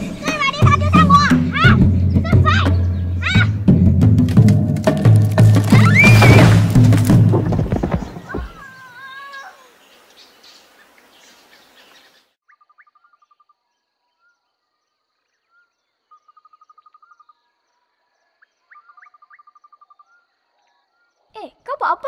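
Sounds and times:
insect ambience: 4.6s - 21.6s
rapid pulsed insect trills: 12.5s - 21.3s.

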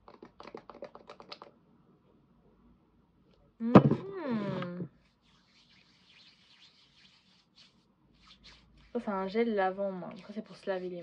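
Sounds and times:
hands rubbing: 5.0s - 11.0s.

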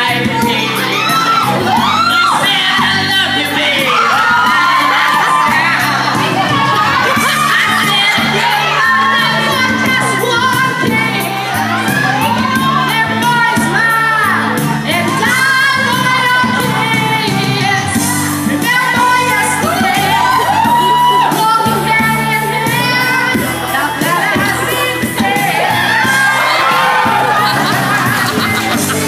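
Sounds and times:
pop backing track with beat: 0.0s - 29.0s
man singing into microphone: 2.2s - 5.5s.

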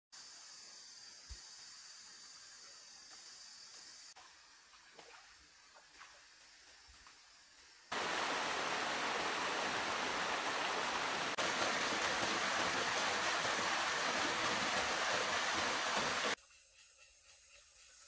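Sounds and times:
waterfall rushing: 7.9s - 16.4s.

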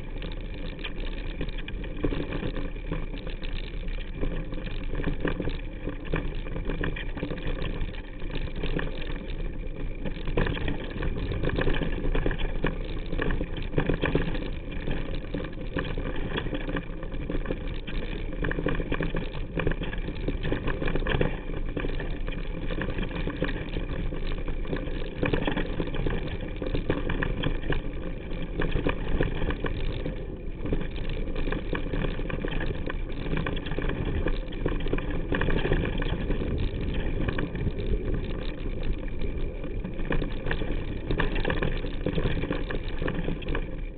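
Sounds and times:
bike rattling over trail: 0.0s - 43.9s.

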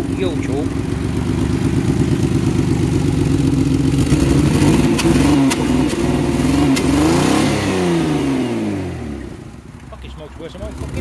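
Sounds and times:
car engine revving: 0.0s - 11.0s
sharp engine cracks: 6.6s - 7.0s.

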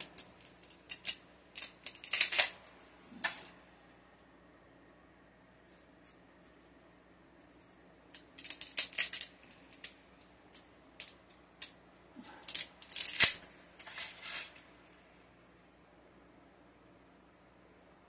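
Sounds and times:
dry spaghetti snapping: 0.0s - 3.5s, 7.6s - 15.0s
loose strands rattling: 0.0s - 3.6s, 7.4s - 15.1s.

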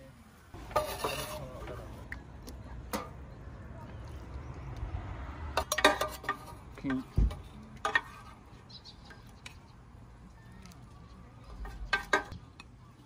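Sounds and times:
metal utensils clinking on pot: 5.6s - 7.1s, 7.8s - 8.4s, 11.5s - 12.7s.

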